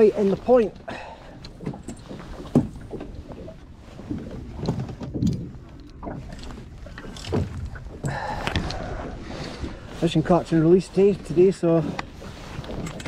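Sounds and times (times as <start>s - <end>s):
water lapping against metal hull: 0.0s - 13.0s
low thumps and knocks: 1.5s - 8.8s.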